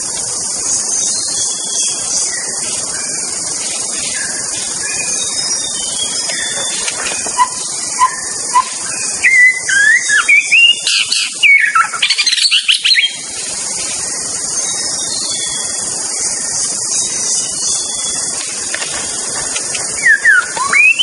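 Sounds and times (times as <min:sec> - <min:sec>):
steady hiss: 0:00.0 - 0:21.0
bird singing whistled phrases: 0:04.1 - 0:13.2, 0:20.0 - 0:21.0.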